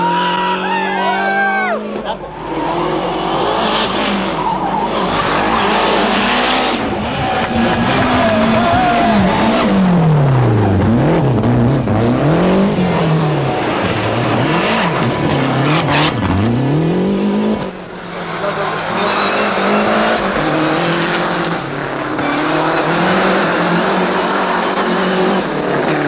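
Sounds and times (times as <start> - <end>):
rally car engine revving: 1.7 - 26.0.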